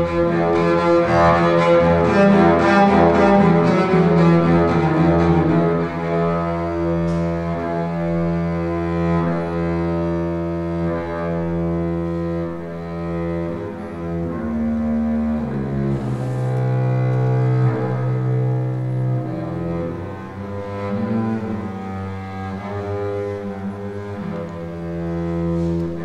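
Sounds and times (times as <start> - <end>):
bowed double bass: 0.0 - 26.0.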